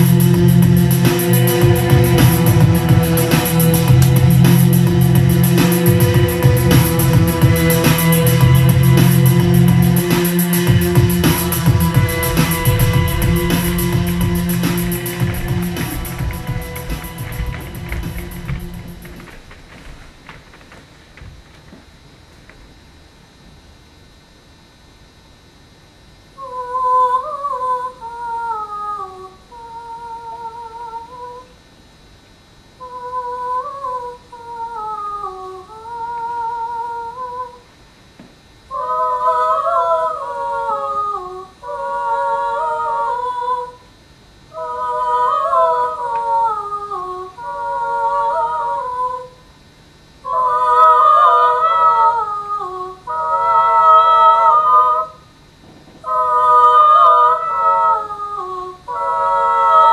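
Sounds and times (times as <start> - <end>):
person humming wordless melody: 0.0 - 19.2
second voice singing harmony: 0.0 - 19.3, 55.9 - 59.9.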